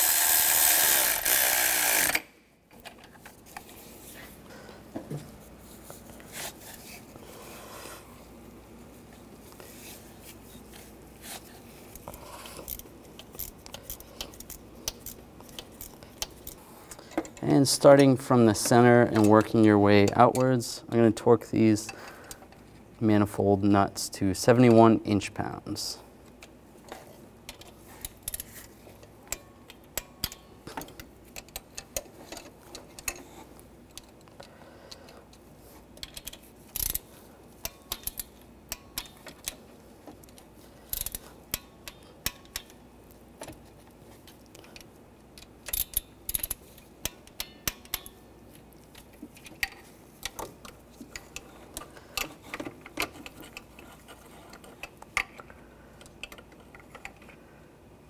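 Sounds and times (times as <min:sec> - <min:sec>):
torque wrench ratcheting clicks: 0:00.0 - 0:02.3, 0:36.0 - 0:37.0, 0:40.9 - 0:42.8, 0:45.4 - 0:48.2.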